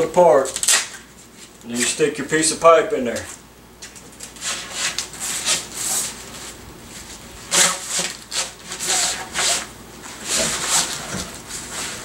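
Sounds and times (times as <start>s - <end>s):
pipe scraping against fabric: 4.4s - 12.0s.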